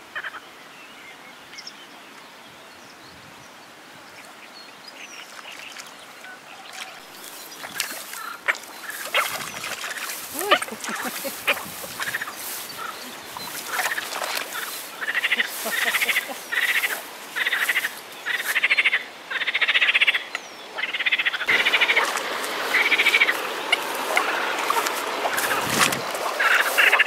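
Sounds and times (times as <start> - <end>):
frogs croaking: 0.0 - 0.4, 6.8 - 27.0.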